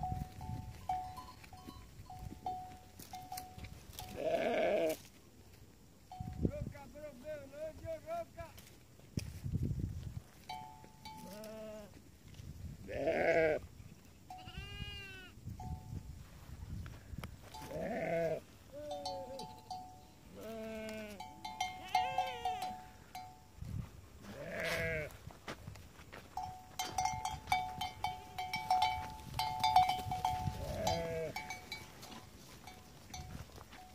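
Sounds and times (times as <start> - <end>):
livestock bells clinking: 0.0 - 4.2, 10.4 - 11.4, 15.6 - 16.0, 18.8 - 20.4, 21.0 - 23.6, 26.3 - 33.9
goats and sheep bleating: 3.9 - 5.1, 11.1 - 12.0, 12.8 - 13.7, 14.3 - 15.4, 17.5 - 23.1, 24.2 - 25.2, 26.8 - 33.2.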